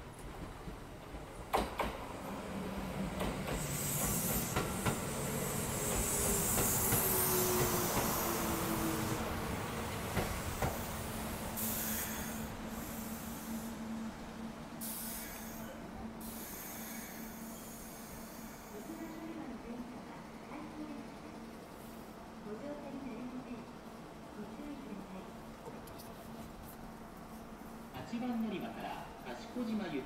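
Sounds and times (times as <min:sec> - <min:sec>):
electric train braking: 0:10.8 - 0:13.8.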